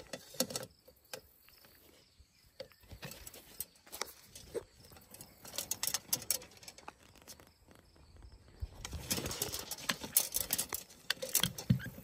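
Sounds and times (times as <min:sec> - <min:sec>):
light metal clicks and rattles: 0:02.6 - 0:07.4, 0:08.8 - 0:12.0.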